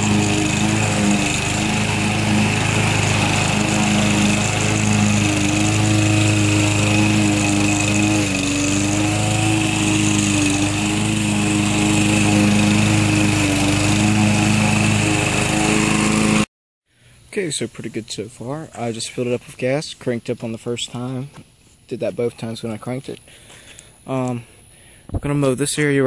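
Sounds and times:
lawn mower engine running: 0.0s - 16.5s.

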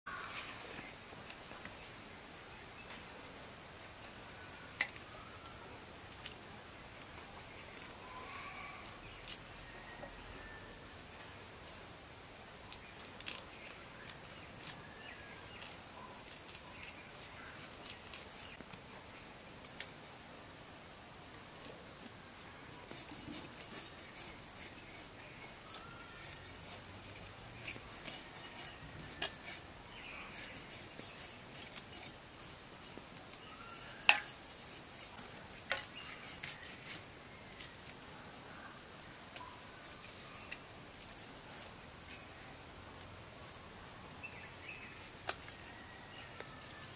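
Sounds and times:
faint bird chirps: 7.3s - 11.0s, 22.6s - 32.1s, 32.8s - 34.8s, 35.5s - 41.6s.

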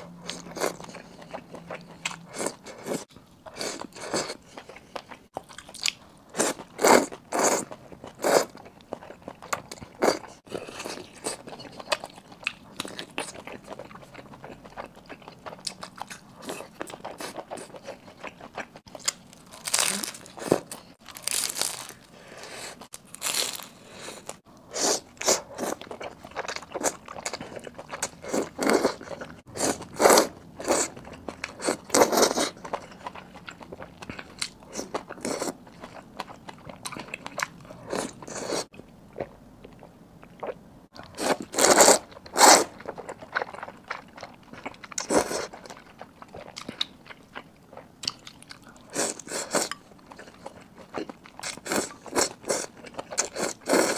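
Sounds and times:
chewing and biting: 40.4s - 53.9s.

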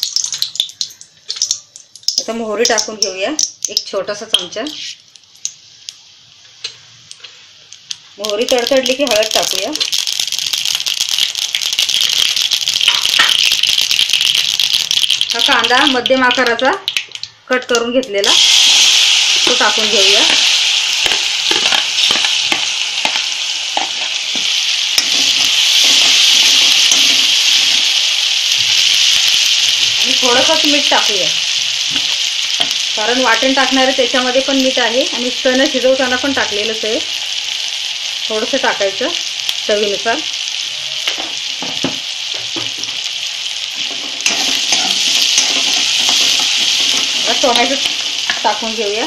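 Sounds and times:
onion sizzling in hot oil: 0.0s - 49.0s
steel spoon scraping a pan: 43.8s - 48.4s.

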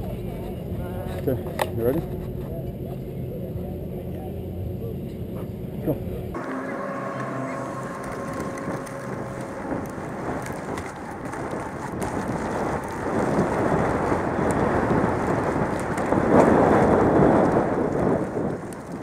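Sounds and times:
wind rushing over microphone: 6.3s - 19.0s
bike tyres rumbling on dirt: 7.9s - 19.0s.

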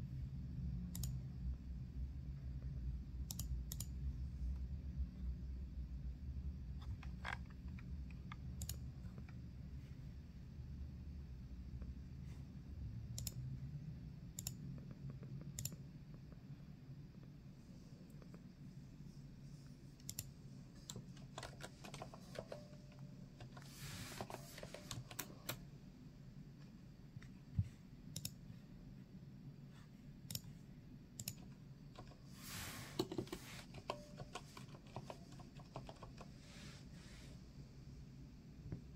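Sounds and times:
low steady hum: 0.0s - 38.9s
computer keyboard clicking: 0.9s - 1.2s, 3.3s - 4.0s, 6.9s - 9.4s, 13.2s - 13.4s, 14.4s - 15.8s, 20.0s - 25.6s, 28.2s - 28.4s, 31.2s - 32.2s, 33.0s - 36.4s.

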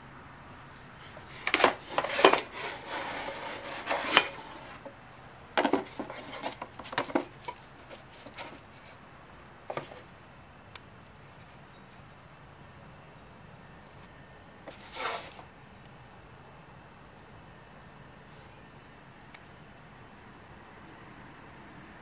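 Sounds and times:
parts box and metal parts handled: 1.0s - 4.9s, 5.6s - 8.9s, 9.7s - 10.1s.

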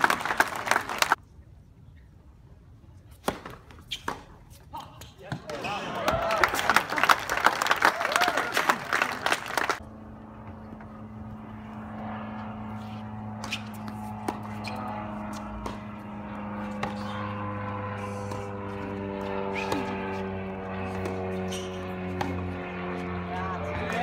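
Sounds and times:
tennis ball struck by racquets: 3.1s - 4.4s, 13.4s - 17.6s, 18.2s - 22.6s
steady engine drone: 8.6s - 24.0s.

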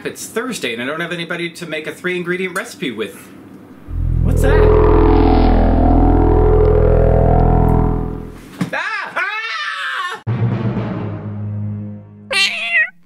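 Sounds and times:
low held electronic note: 3.8s - 8.4s
swooping warbling electronic sounds: 3.8s - 8.4s.

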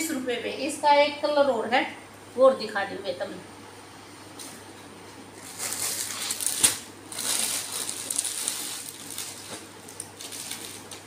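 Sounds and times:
plastic packaging crinkling: 5.4s - 11.0s.

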